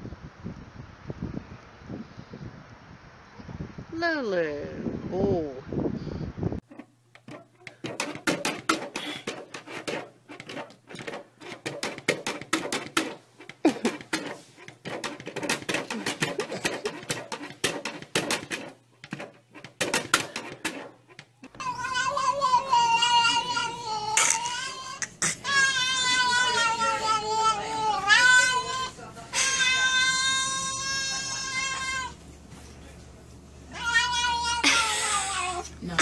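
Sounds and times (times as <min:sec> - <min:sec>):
cat yowling: 0:21.6 - 0:32.2, 0:33.7 - 0:35.8.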